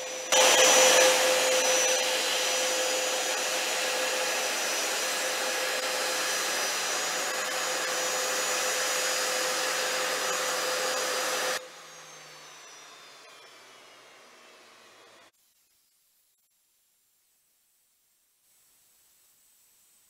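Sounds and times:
jet engines running: 0.0s - 12.2s
engine whine sliding down: 0.0s - 15.3s.

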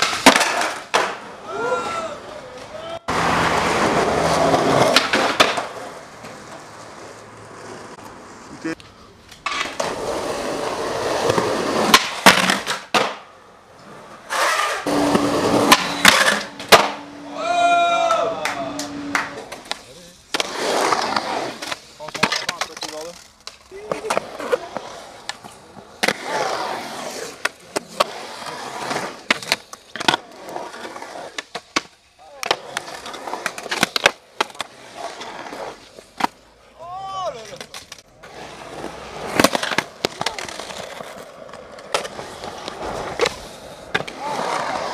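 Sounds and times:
skateboard clacks: 0.0s - 1.9s, 2.5s - 7.3s, 8.8s - 13.3s, 14.3s - 17.1s, 18.0s - 34.8s, 36.1s - 44.9s
skateboard wheels rolling on pavement: 0.0s - 44.9s
skateboard clacking on coping: 3.6s - 8.1s, 36.9s - 44.9s.

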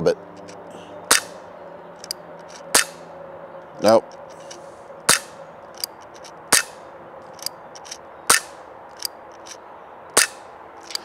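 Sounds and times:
pellet pistol shots: 1.1s - 1.4s, 2.7s - 3.0s, 5.1s - 5.4s, 6.5s - 6.8s, 8.3s - 8.6s, 10.2s - 10.4s.

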